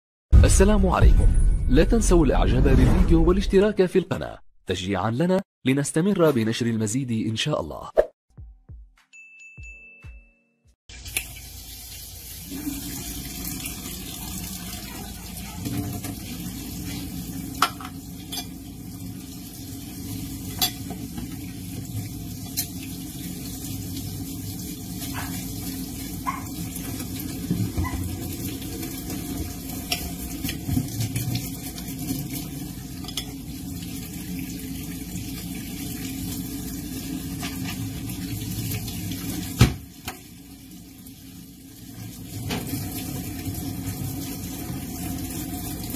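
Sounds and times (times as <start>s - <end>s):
tap water running into sink: 10.9s - 45.9s.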